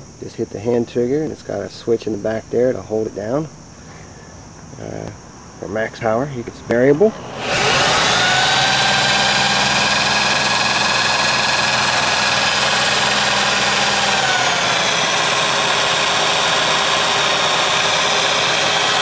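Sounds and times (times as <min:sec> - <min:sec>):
electric drill motor whining: 0:07.0 - 0:19.0.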